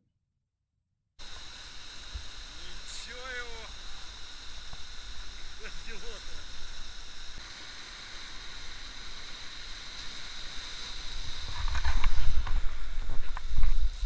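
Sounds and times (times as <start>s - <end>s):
whitewater rushing over weir: 1.2s - 14.0s.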